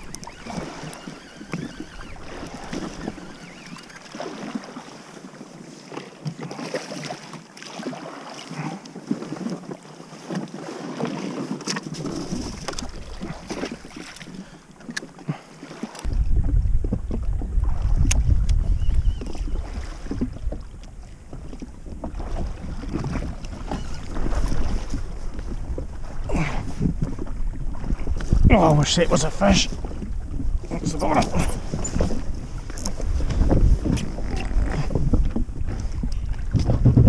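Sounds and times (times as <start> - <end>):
water lapping at a hull: 0.0 - 37.0
low wind rumble: 16.0 - 37.0
wind on microphone: 16.0 - 37.0.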